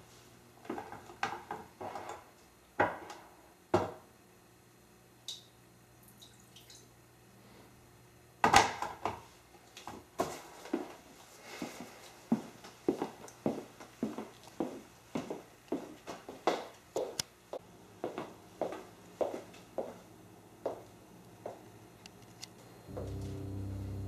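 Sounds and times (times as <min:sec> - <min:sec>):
items knocking on counter: 0:03.7 - 0:04.0
faint low hum: 0:17.6 - 0:24.0.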